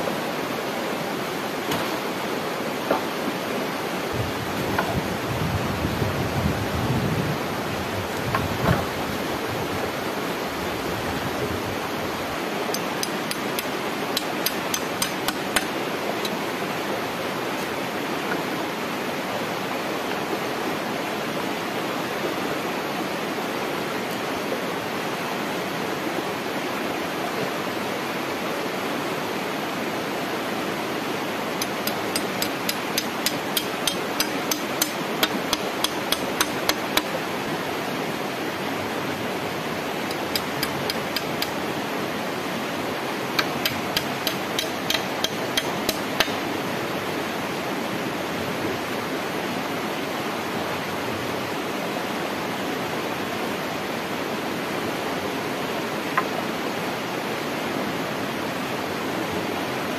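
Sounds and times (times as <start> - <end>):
flowing water: 0.0 - 59.9
hammering on wooden frame: 12.8 - 15.8, 31.6 - 37.1, 40.1 - 41.6, 43.4 - 46.4.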